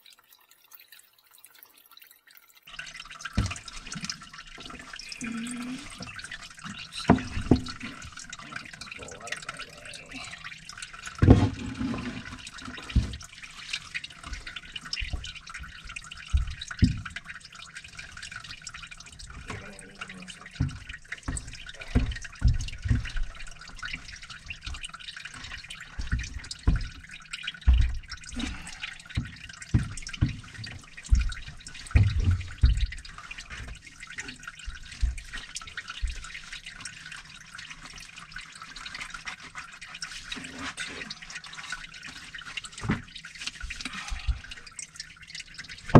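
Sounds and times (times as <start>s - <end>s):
water running and dripping: 0.0s - 45.9s
dull thumps and knocks: 6.0s - 8.3s, 11.2s - 13.3s, 14.2s - 17.2s, 20.4s - 33.8s, 34.6s - 36.5s.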